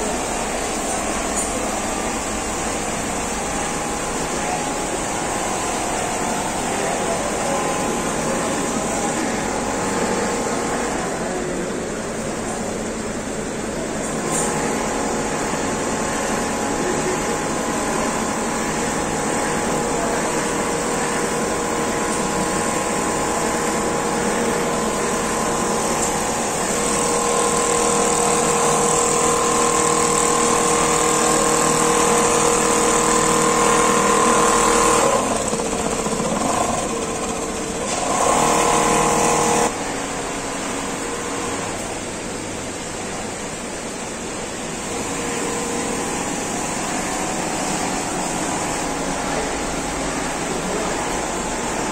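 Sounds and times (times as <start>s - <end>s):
quilting machine whirring: 14.0s - 40.0s.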